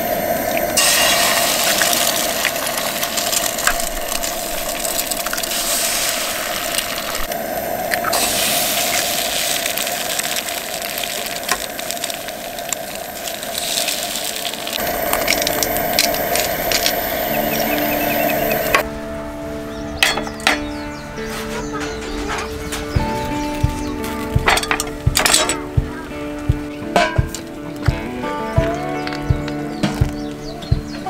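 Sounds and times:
food sizzling in frying pan: 0:00.0 - 0:18.8
stove burner rushing: 0:00.0 - 0:18.8
fat spattering crackles: 0:00.2 - 0:18.8, 0:22.5 - 0:28.0.

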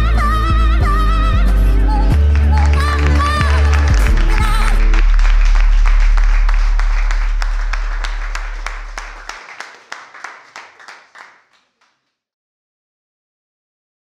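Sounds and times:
crowd applauding: 0:02.1 - 0:12.0
deep held bass note: 0:03.4 - 0:09.2.

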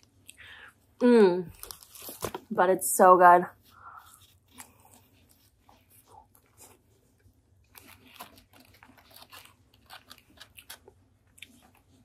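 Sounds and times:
crunching of fried chicken: 0:07.6 - 0:12.0.

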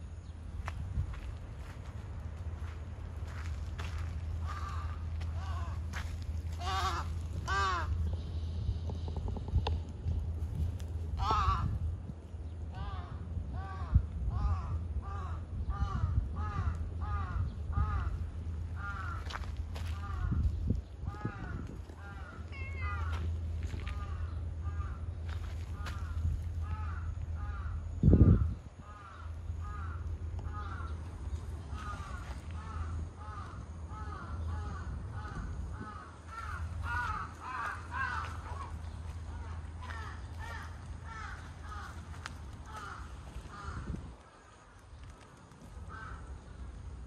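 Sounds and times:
low rumble: 0:00.0 - 0:47.0
crow cawing: 0:03.8 - 0:08.0, 0:11.2 - 0:11.8, 0:12.7 - 0:31.1, 0:31.7 - 0:44.8, 0:45.9 - 0:46.5.

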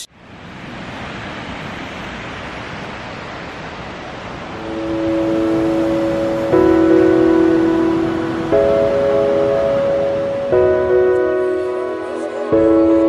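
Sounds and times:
steady rushing noise: 0:00.0 - 0:13.0
sustained musical notes: 0:04.6 - 0:13.0.

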